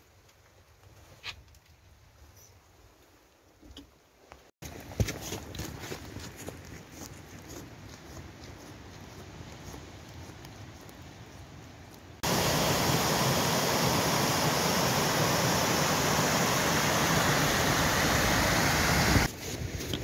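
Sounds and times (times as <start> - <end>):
waterfall rushing: 12.2 - 19.3.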